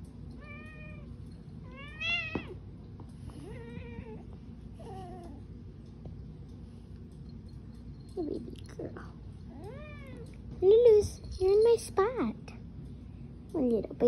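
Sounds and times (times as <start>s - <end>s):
cat meowing: 1.7s - 2.6s, 9.5s - 10.3s.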